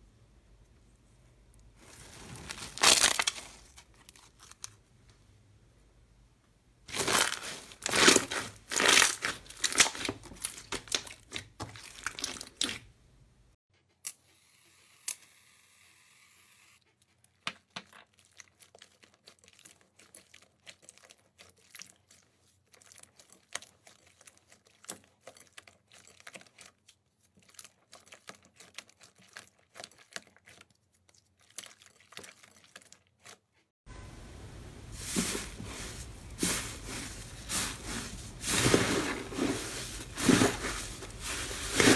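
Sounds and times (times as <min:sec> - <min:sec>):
slime crackling and popping: 0:06.9 - 0:12.8.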